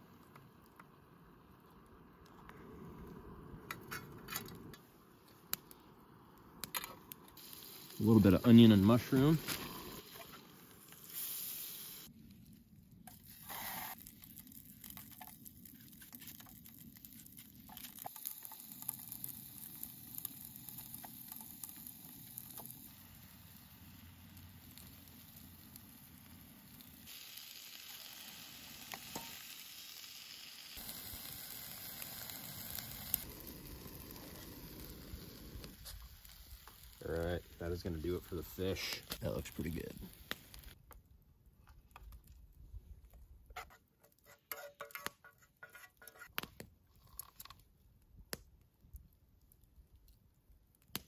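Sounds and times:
food sizzling in a pan: 7.4 - 12.1, 13.1 - 40.8.

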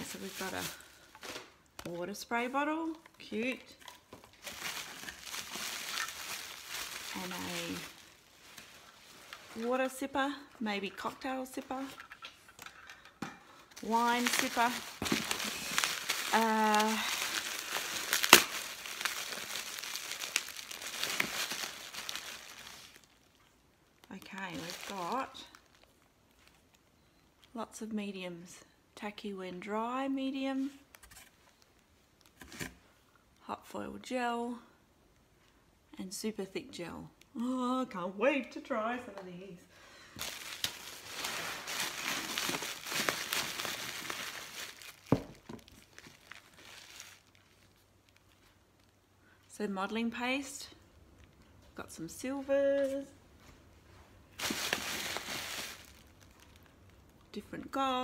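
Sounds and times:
packing paper crinkling: 0.0 - 1.7, 3.8 - 10.0, 13.7 - 26.9, 40.2 - 49.0, 54.3 - 57.2.

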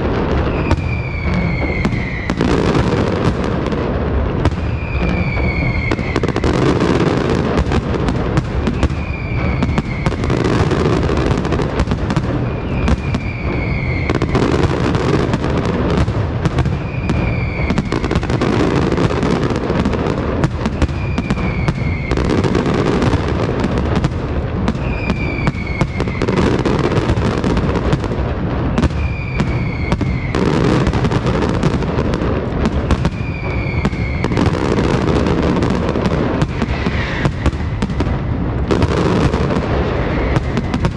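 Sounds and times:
falling firework whistle: 0.0 - 40.9
firework shell bursts and crackle: 0.0 - 40.9
heavy rumble: 30.8 - 40.9.

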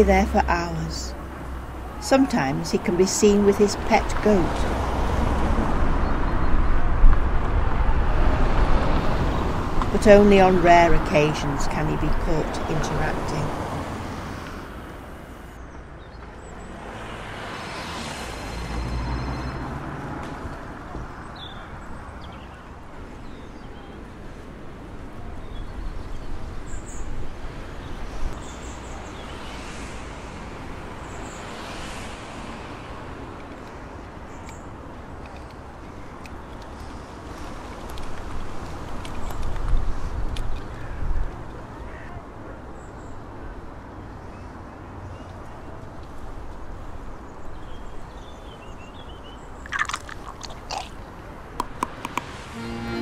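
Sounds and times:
low wind rumble: 0.0 - 15.6
passing traffic: 0.0 - 53.0
wind rumble on microphone: 3.9 - 10.0, 37.3 - 41.5
sharp clicks: 51.6 - 52.3.

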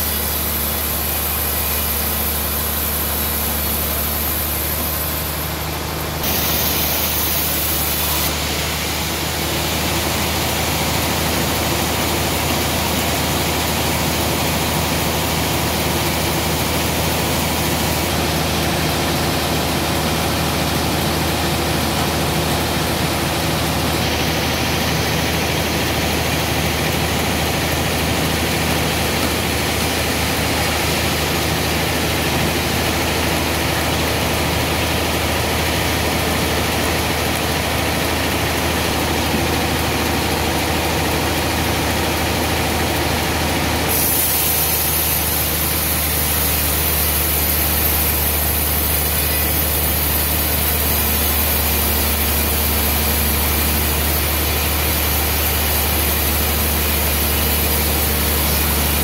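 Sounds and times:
band saw sawing log: 43.9 - 59.0.

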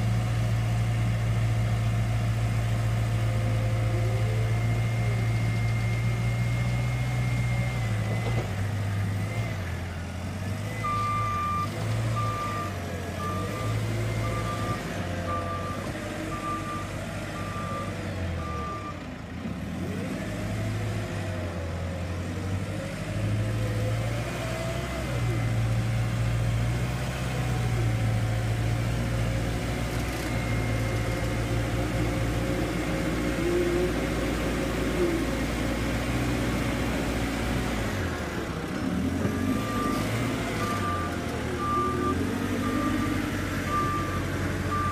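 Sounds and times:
diesel engine under load: 0.0 - 44.9
reversing alarm beeping: 10.6 - 19.0, 39.4 - 44.9.

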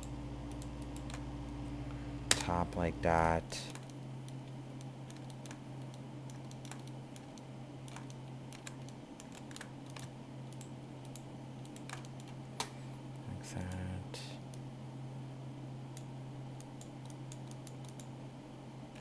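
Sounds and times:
steady low hum: 0.0 - 19.0
computer keyboard keys clicking: 3.2 - 12.4, 16.7 - 18.1.

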